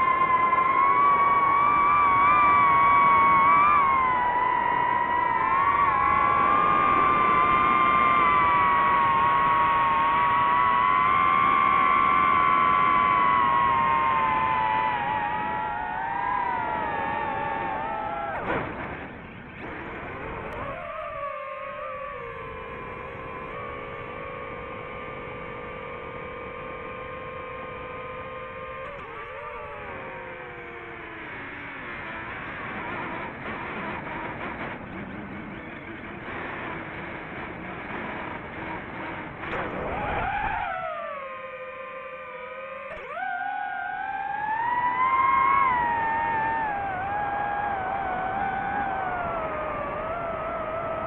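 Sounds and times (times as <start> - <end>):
drone motors whining: 0.0 - 51.0.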